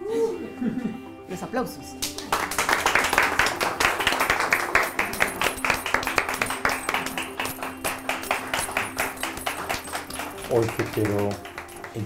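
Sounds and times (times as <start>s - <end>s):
people clapping: 2.0s - 12.0s.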